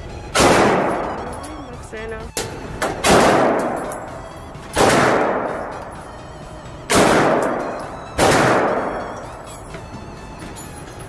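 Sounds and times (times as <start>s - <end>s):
pistol shots echoing: 0.3s - 1.4s, 2.8s - 6.2s, 6.9s - 9.5s.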